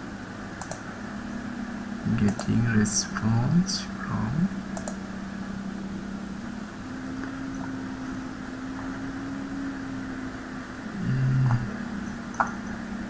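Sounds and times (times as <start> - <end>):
motor or fan humming: 0.0 - 13.0
faint clicks: 0.6 - 0.8, 2.3 - 2.5, 4.7 - 5.0.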